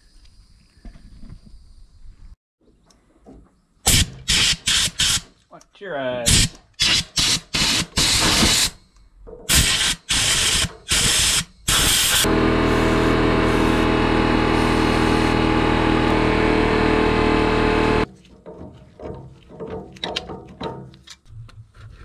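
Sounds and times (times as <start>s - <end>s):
aerosol can spraying: 6.3s - 8.7s, 9.5s - 13.8s
steady hum: 12.2s - 18.1s.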